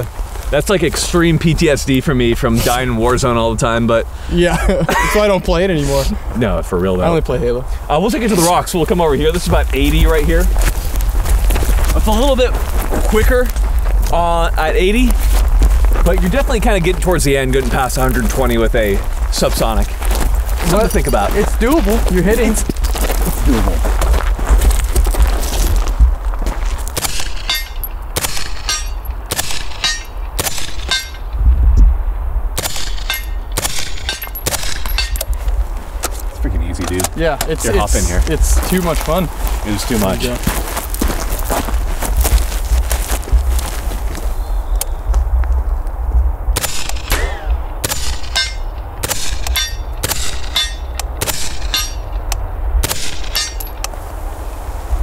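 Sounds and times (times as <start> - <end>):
wind rumble on microphone: 5.6 - 28.2, 30.2 - 48.0, 50.9 - 55.0
bullet clanging on steel: 27.0 - 31.3, 32.7 - 35.3, 46.7 - 52.3, 52.9 - 53.9
suppressed gunshots: 28.2 - 28.7, 32.6 - 34.8, 46.6 - 48.4, 52.8 - 53.4.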